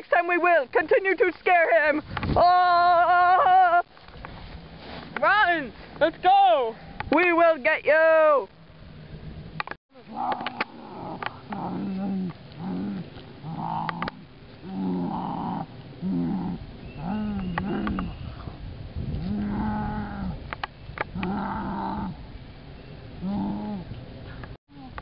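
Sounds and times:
person growling like an animal: 0:10.0 - 0:18.0, 0:19.1 - 0:20.4, 0:21.2 - 0:22.2, 0:23.2 - 0:23.9.

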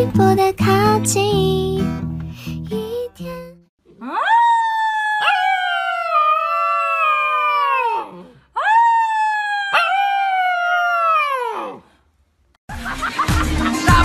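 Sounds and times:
puppy howling: 0:03.9 - 0:11.8.

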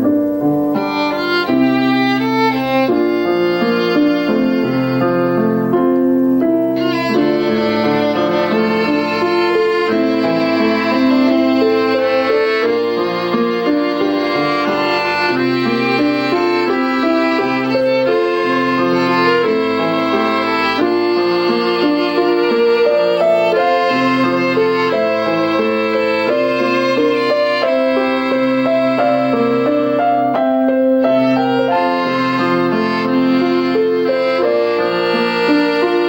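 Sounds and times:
keyboard harmonica: 0:00.0 - 0:36.0
piano chords: 0:00.0 - 0:36.0
violin melody: 0:00.0 - 0:36.0.

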